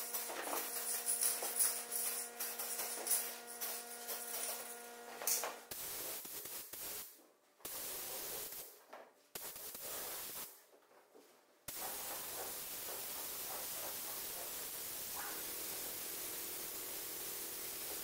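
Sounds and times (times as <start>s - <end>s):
paint spray gun hissing: 5.7s - 7.1s, 7.7s - 8.7s, 9.4s - 10.5s, 11.7s - 18.0s.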